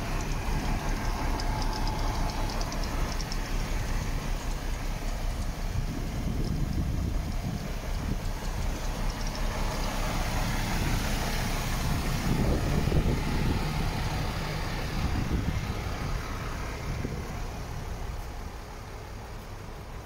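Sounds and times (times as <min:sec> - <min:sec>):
diesel truck engine idling: 0:00.0 - 0:20.0
wind noise on microphone: 0:05.2 - 0:18.2.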